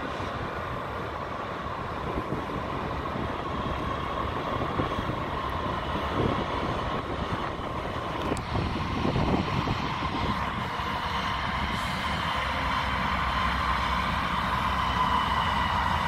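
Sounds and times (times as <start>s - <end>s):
diesel locomotives rumbling: 0.0s - 16.0s
train wheel noise: 0.0s - 16.0s
high whine: 5.0s - 16.0s.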